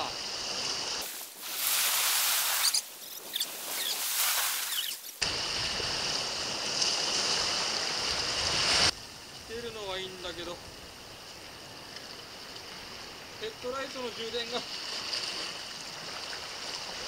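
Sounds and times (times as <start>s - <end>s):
sped-up surf and wind hiss: 0.0s - 17.0s
high squeaks: 2.6s - 5.1s.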